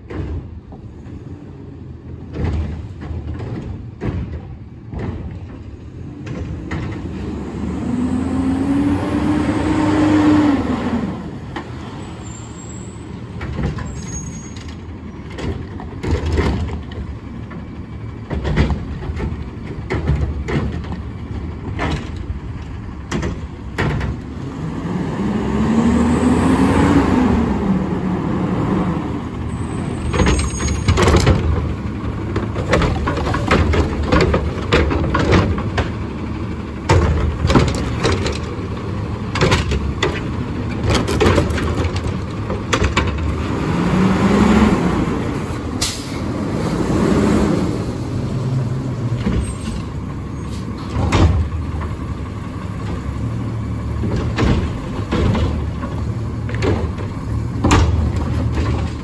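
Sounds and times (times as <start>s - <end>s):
metal clanks and knocks: 0.0s - 1.2s, 2.0s - 7.1s, 13.3s - 24.4s, 29.8s - 43.4s, 49.1s - 59.0s
diesel engine running: 4.6s - 59.0s.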